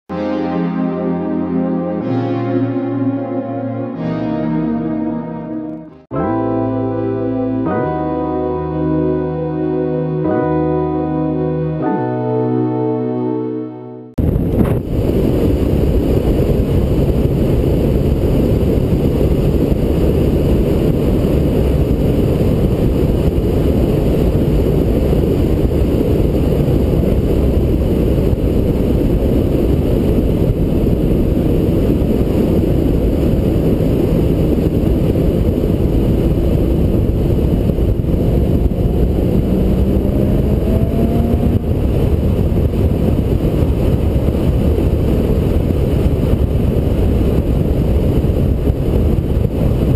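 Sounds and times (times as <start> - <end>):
wind and road noise rumble: 14.2 - 49.9.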